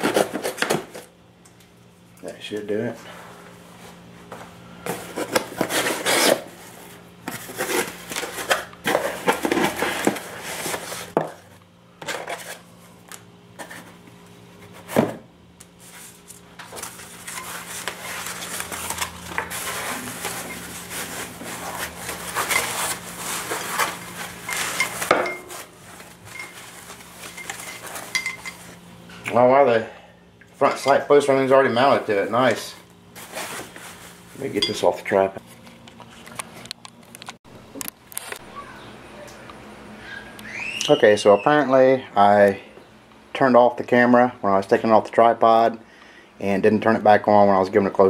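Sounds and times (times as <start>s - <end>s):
faint steady hum: 0.0s - 48.0s
cardboard and foam rustling: 4.9s - 12.7s, 15.8s - 28.1s, 32.2s - 34.6s.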